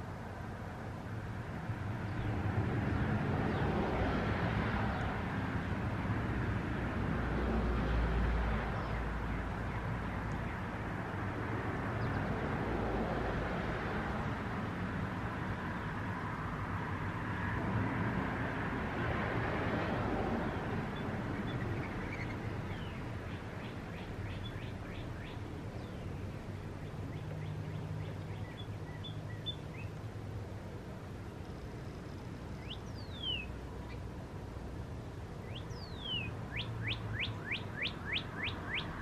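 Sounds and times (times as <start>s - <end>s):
road traffic rushing: 0.0s - 39.0s
small birds chirping: 8.7s - 10.8s, 11.8s - 12.4s, 20.4s - 34.2s, 34.9s - 39.0s.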